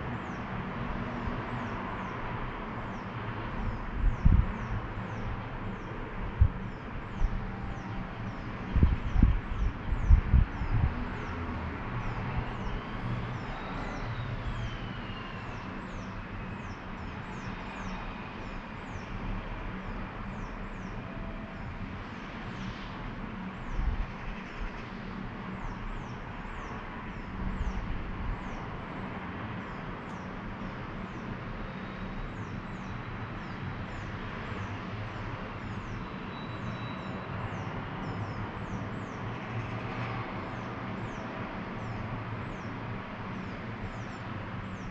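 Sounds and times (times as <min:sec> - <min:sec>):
distant road traffic hum: 0:00.0 - 0:44.9
wind buffeting microphone: 0:00.2 - 0:14.8, 0:26.6 - 0:28.9.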